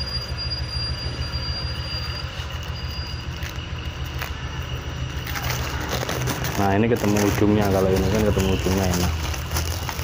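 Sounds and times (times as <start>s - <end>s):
low hum: 0.0s - 7.4s
high whine: 0.0s - 10.0s
packaging rustling and crackling: 5.2s - 10.0s.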